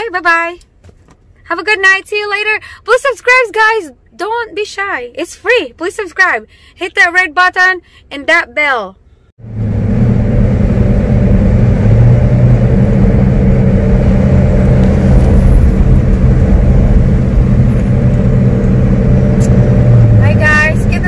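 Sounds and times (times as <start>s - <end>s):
road noise: 9.4s - 21.0s
vehicle engine running: 9.4s - 21.0s.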